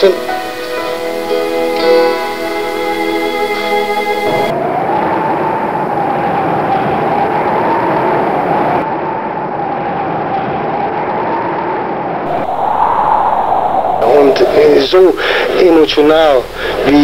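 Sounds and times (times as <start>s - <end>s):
wind rushing: 12.2s - 17.0s.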